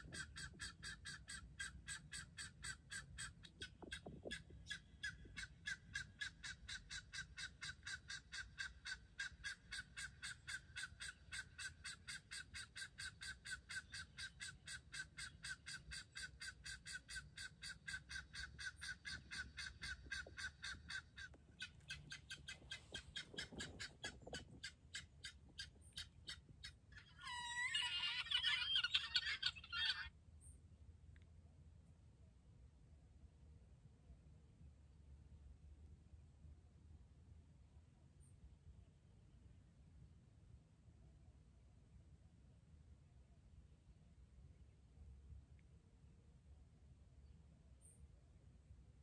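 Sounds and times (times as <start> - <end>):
guineafowl chattering: 0.0 - 30.1.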